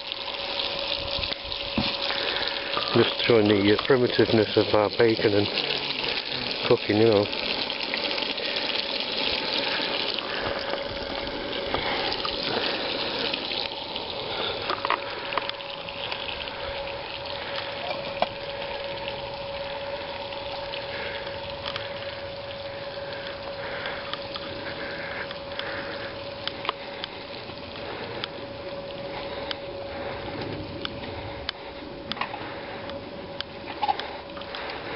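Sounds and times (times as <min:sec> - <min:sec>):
faint steady tone: 0:00.0 - 0:34.9.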